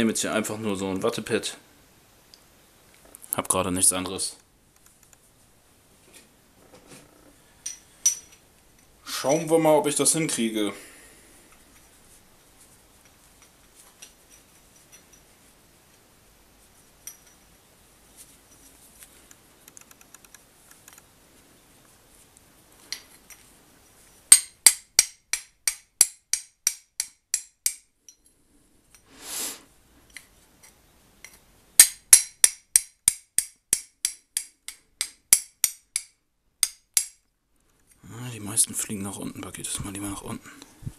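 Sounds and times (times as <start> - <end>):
short rush of noise: 29.1 - 29.7.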